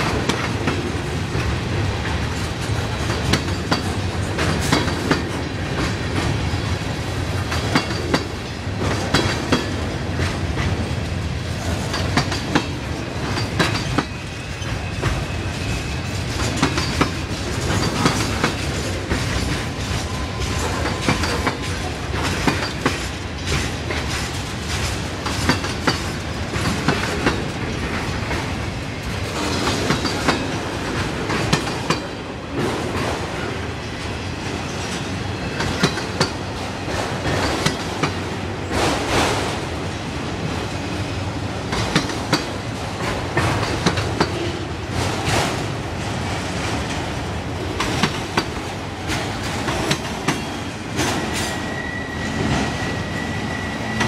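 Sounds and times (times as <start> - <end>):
freight train rumbling past: 0.0 - 54.0
steel wheels clattering over rail joints: 0.0 - 54.0.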